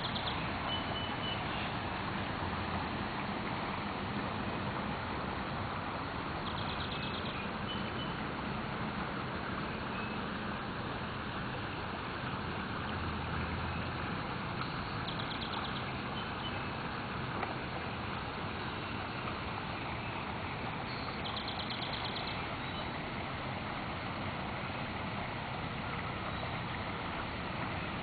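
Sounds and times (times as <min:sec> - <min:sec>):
creek water rushing: 0:00.0 - 0:28.0.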